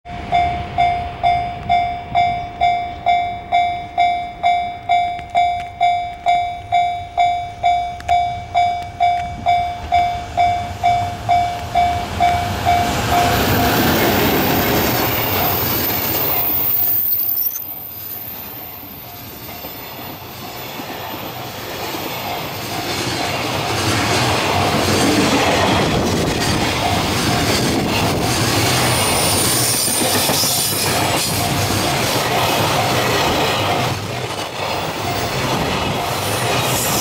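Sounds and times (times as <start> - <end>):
level crossing bell ringing: 0.1 - 13.8
freight train rumbling past: 0.1 - 37.0.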